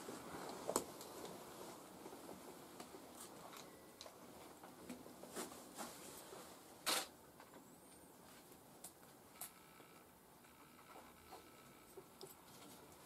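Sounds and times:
soft rustles: 0.0s - 6.8s.

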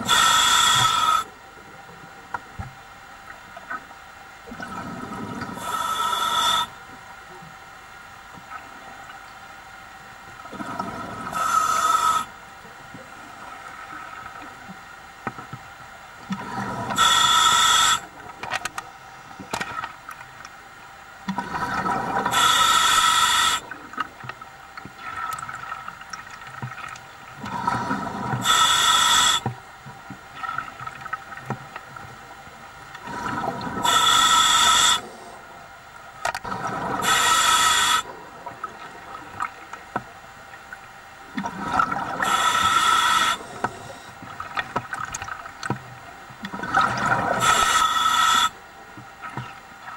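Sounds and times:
regulator breath hiss: 0.0s - 1.4s, 5.6s - 6.8s, 11.3s - 12.4s, 16.8s - 18.2s, 22.3s - 23.7s, 27.8s - 29.5s, 33.8s - 35.4s, 37.0s - 38.1s, 42.2s - 44.2s, 47.4s - 48.6s
exhaled air bubbling: 4.4s - 6.8s, 10.4s - 12.3s, 16.2s - 18.4s, 21.2s - 29.5s, 32.8s - 35.0s, 36.4s - 48.5s.

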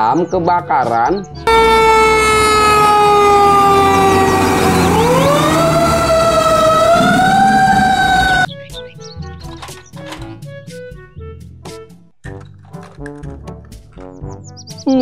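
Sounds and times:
light background music: 0.0s - 1.5s, 8.5s - 15.0s
fire engine siren: 1.5s - 8.5s.

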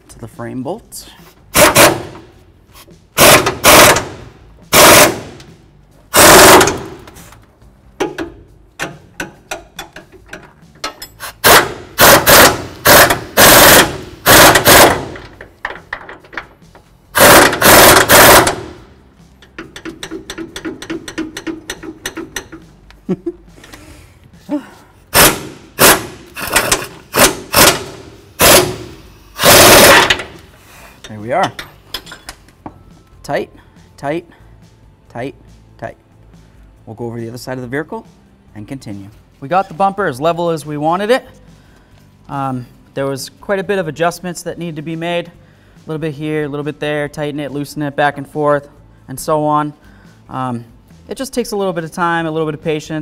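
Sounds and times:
pneumatic impact wrench rattling: 1.5s - 2.3s, 3.1s - 5.5s, 6.1s - 7.4s, 8.0s - 22.6s, 25.1s - 30.5s.

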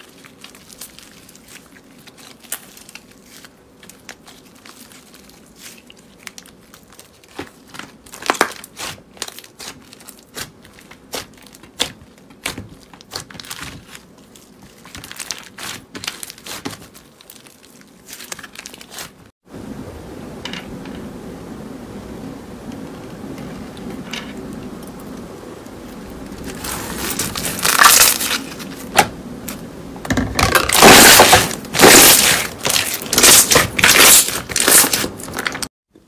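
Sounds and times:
steady hiss: 19.5s - 30.0s.

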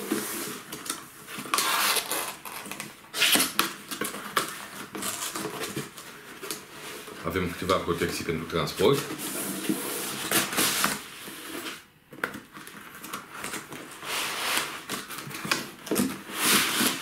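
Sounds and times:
cardboard and foam rubbing and scraping: 4.6s - 11.8s, 13.4s - 17.0s.

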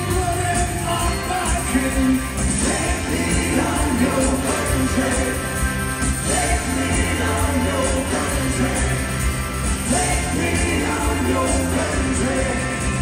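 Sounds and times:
live rock band playing: 0.0s - 13.0s
person singing: 0.0s - 13.0s.

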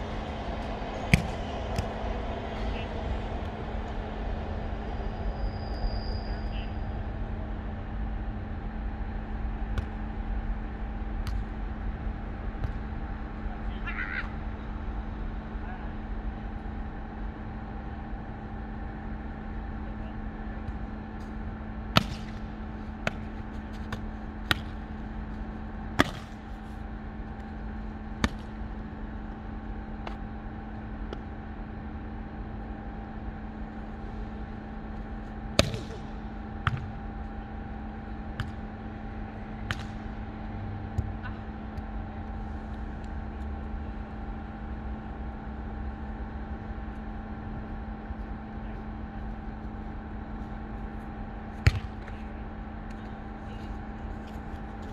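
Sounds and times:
steady low hum: 0.0s - 54.9s
volleyball smacks: 1.1s - 1.9s, 22.0s - 22.4s, 26.0s - 26.4s, 35.6s - 36.9s, 39.6s - 40.1s, 51.6s - 52.2s.

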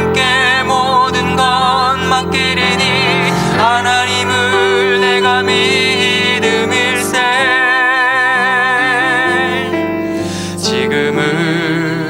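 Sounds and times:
gospel hymn music: 0.0s - 12.0s.

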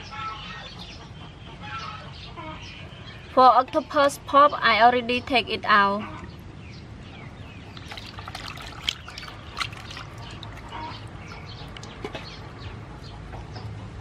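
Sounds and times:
water trickling: 7.4s - 12.4s
wet squelching: 7.6s - 12.2s.

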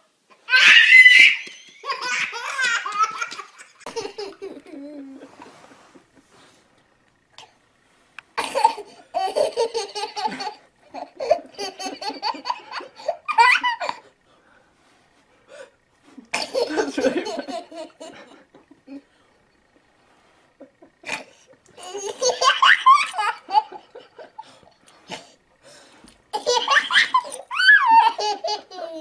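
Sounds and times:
baby squealing: 0.5s - 2.2s
baby laughing hysterically: 0.5s - 4.7s, 8.4s - 14.0s, 16.4s - 18.3s, 21.8s - 24.4s, 26.4s - 29.0s.

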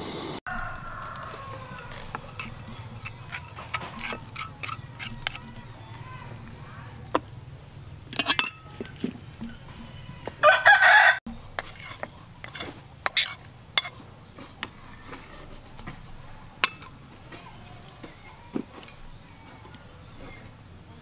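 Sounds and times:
rooster crowing: 0.5s - 3.2s, 9.7s - 11.2s
metal spoon scraping metal: 0.6s - 5.9s, 8.1s - 10.0s, 11.3s - 14.0s, 14.6s - 17.0s.

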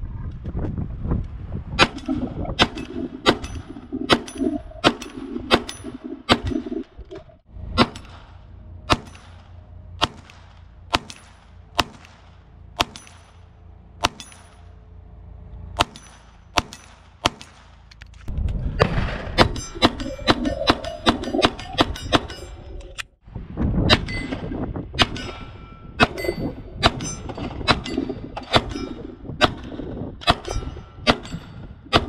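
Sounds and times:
metallic clangs on steel target: 8.9s - 12.1s, 12.8s - 14.8s, 15.8s - 17.6s, 23.9s - 32.0s.

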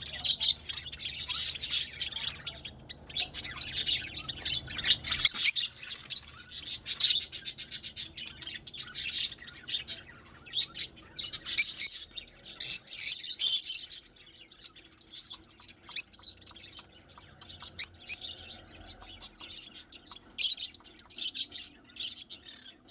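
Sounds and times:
lovebirds chirping: 0.0s - 22.9s.

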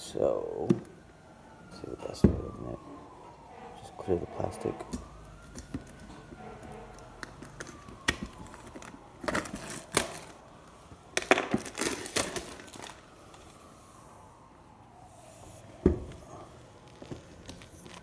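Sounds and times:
plastic wrap crinkling and tearing: 6.9s - 10.5s, 11.1s - 13.6s, 16.8s - 18.0s.

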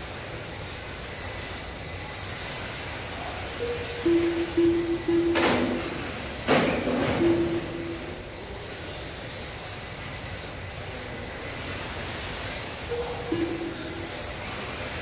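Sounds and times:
electric motors whining: 0.0s - 15.0s
short beeps: 3.7s - 6.3s.

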